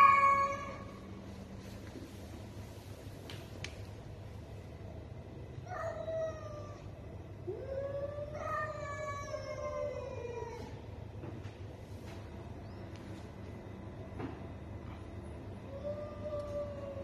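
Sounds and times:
cats yowling: 0:00.0 - 0:00.9, 0:05.6 - 0:10.8, 0:15.6 - 0:17.0.

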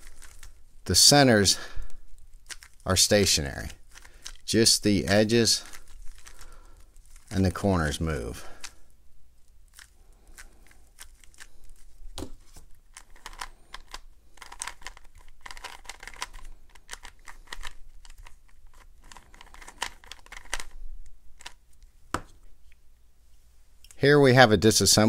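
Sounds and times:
puzzle cube clicking as twisted: 0:00.0 - 0:00.6, 0:02.3 - 0:02.8, 0:03.4 - 0:07.4, 0:09.7 - 0:20.8.

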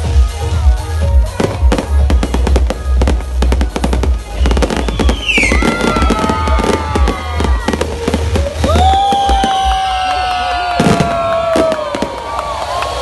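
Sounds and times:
fireworks bangs and crackling: 0:00.0 - 0:13.0
falling firework whistle: 0:04.4 - 0:13.0.

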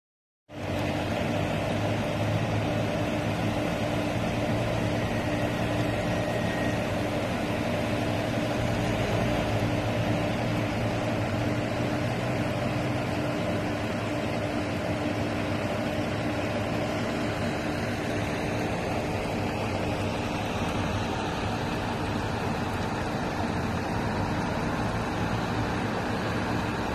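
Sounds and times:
continuous rushing noise: 0:00.5 - 0:26.9
machinery humming: 0:00.6 - 0:26.9.

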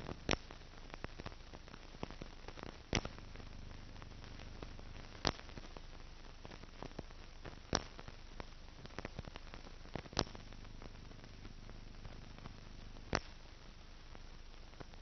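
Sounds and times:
film soundtrack hiss and crackles: 0:00.0 - 0:15.0
loud pops: 0:02.9 - 0:05.8, 0:09.9 - 0:13.4.

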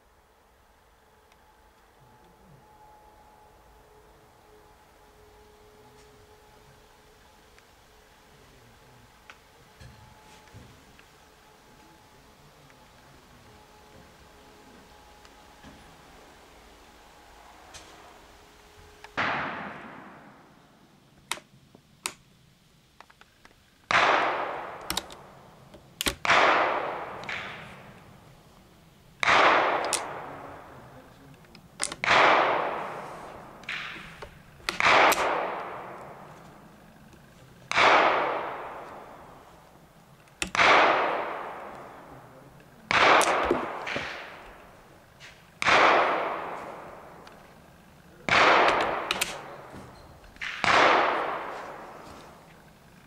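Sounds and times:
faint sharp sounds: 0:00.0 - 0:53.0
gunshots with echo: 0:18.9 - 0:20.8, 0:23.9 - 0:25.5, 0:26.1 - 0:28.3, 0:29.2 - 0:31.2, 0:31.8 - 0:37.1, 0:37.7 - 0:39.7, 0:40.4 - 0:49.8, 0:50.4 - 0:52.5.

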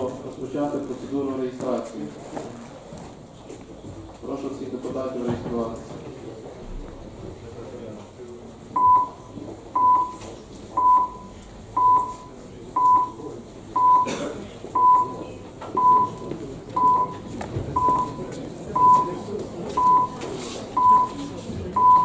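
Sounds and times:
low murmur of hall: 0:00.0 - 0:22.0
short electronic beeps: 0:08.8 - 0:10.2, 0:10.8 - 0:13.2, 0:13.8 - 0:14.1, 0:14.8 - 0:15.2, 0:15.8 - 0:17.2, 0:17.8 - 0:19.1, 0:19.8 - 0:20.2, 0:20.8 - 0:22.0.

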